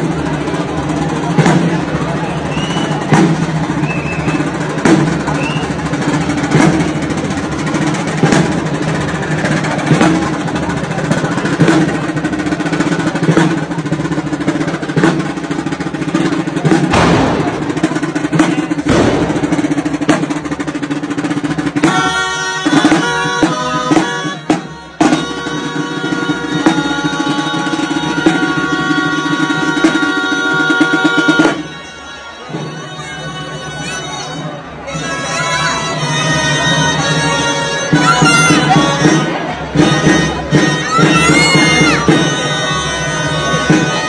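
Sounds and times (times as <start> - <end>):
steady drum beat: 0.0 - 44.0
clarinets and trumpets playing: 21.8 - 44.0.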